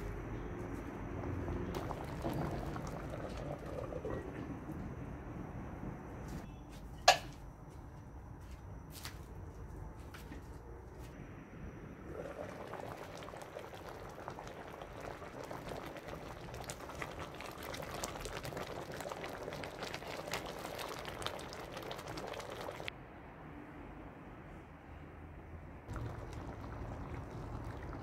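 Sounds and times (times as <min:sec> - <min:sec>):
stew bubbling in a pot: 0:01.2 - 0:06.2, 0:11.9 - 0:22.9, 0:25.9 - 0:28.0.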